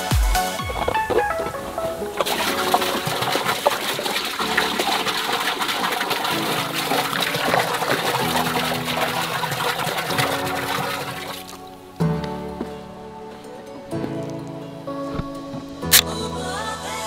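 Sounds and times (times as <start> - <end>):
soda pouring into container: 0.8 - 11.6.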